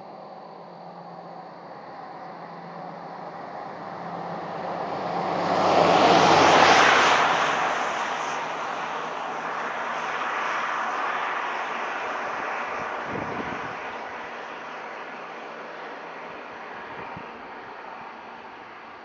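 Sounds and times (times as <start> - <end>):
vehicle engine passing by: 1.2 - 15.2.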